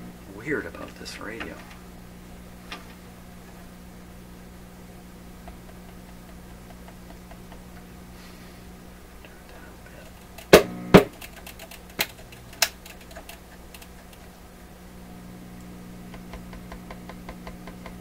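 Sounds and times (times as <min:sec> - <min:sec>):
radio receiver low hum: 0:00.0 - 0:18.0
faint ticks of switch and tuning: 0:05.4 - 0:07.9, 0:10.0 - 0:14.4, 0:15.5 - 0:18.0.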